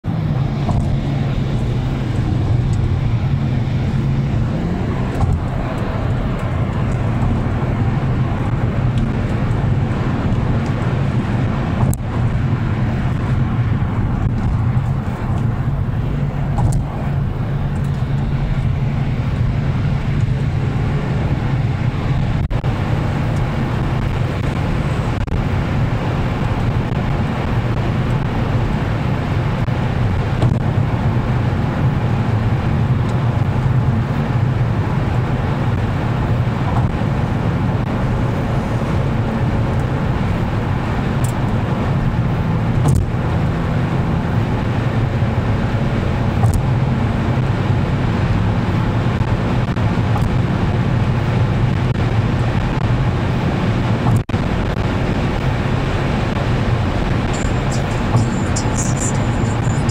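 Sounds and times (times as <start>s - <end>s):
car road noise inside cabin: 0.0s - 59.9s.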